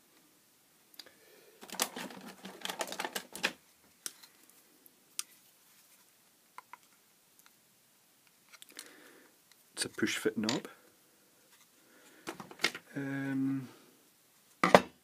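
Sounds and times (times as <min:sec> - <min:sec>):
plastic scrapes: 0:01.6 - 0:03.6.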